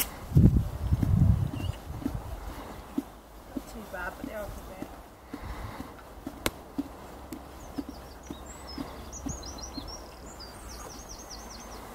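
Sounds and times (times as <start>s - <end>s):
ponies chewing grass: 0.1s - 11.9s
small bird chirping: 0.8s - 1.9s, 7.4s - 11.9s.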